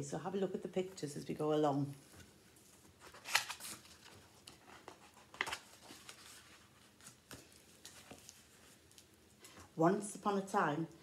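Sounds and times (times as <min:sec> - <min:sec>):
paper pages rustling: 0:02.1 - 0:09.6.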